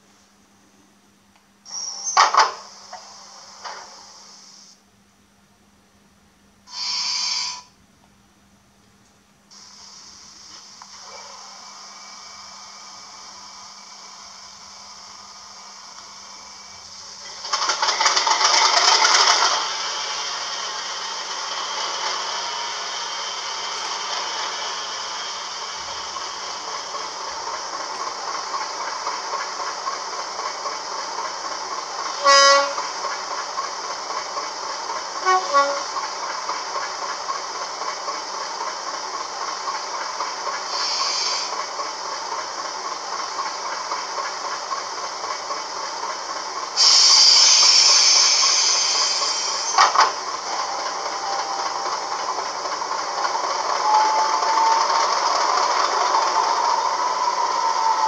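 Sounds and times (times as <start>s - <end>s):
air hiss: 1.6s - 4.8s, 6.7s - 7.7s, 9.5s - 17.9s, 19.3s - 58.0s
locomotive horn: 32.2s - 32.9s, 35.2s - 36.0s.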